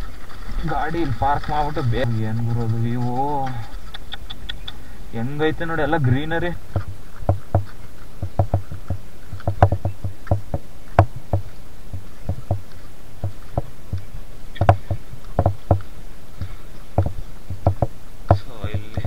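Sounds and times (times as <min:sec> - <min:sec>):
footsteps on stone steps: 0:00.0 - 0:19.0.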